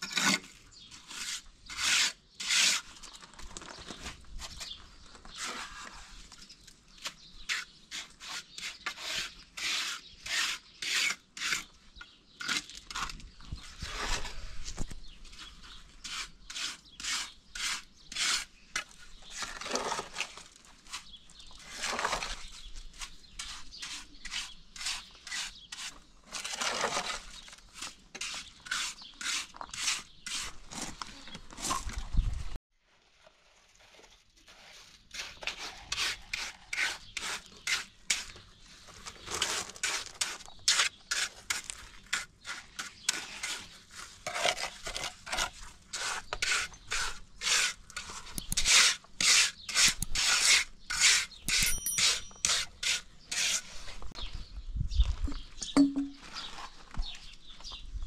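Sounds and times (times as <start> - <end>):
hand tool rasping: 42.2 - 53.9.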